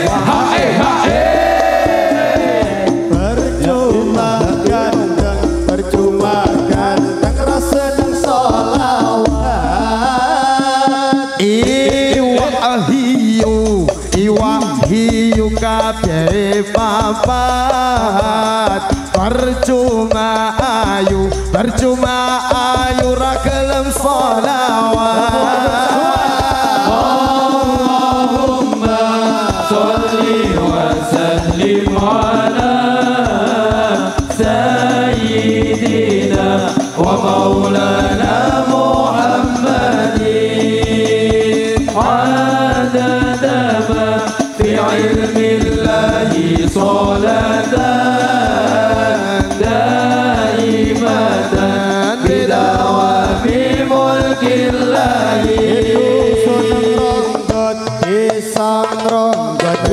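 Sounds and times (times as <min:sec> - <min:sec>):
man singing devotional chant: 0:00.0 - 0:01.3, 0:03.1 - 0:59.9
musical accompaniment: 0:00.0 - 0:59.9
steady percussion beat: 0:00.0 - 0:59.9.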